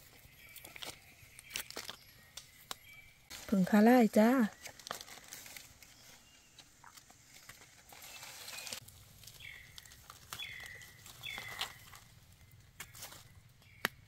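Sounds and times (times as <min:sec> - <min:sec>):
rustling in dry leaves: 0:00.0 - 0:13.8
bird calling: 0:08.0 - 0:14.0.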